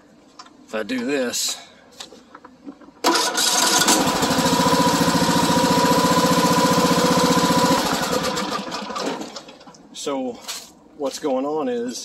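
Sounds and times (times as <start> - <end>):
mower engine spinning over: 3.0 - 9.6.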